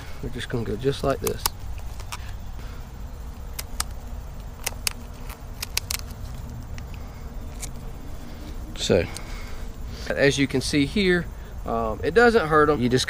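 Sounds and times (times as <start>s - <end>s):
steady low rumble: 0.0s - 13.0s
scissors snipping feathers: 3.4s - 6.2s.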